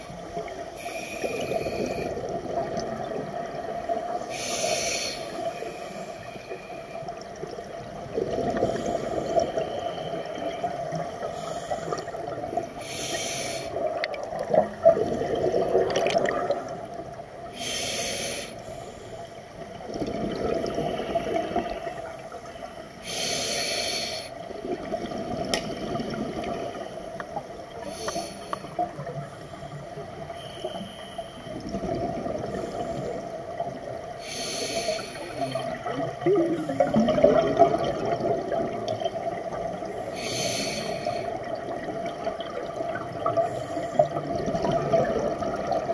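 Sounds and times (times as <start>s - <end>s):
regulator inhalation hiss: 0.7s - 2.2s, 4.2s - 7.0s, 12.8s - 13.9s, 17.5s - 19.4s, 23.0s - 24.4s, 27.8s - 28.8s, 29.4s - 31.5s, 34.2s - 35.8s, 40.0s - 41.5s
exhaled bubbles rushing: 1.3s - 4.2s, 7.4s - 11.3s, 13.8s - 17.2s, 19.8s - 22.3s, 24.5s - 27.0s, 31.5s - 32.8s, 35.7s - 40.0s, 41.4s - 45.9s.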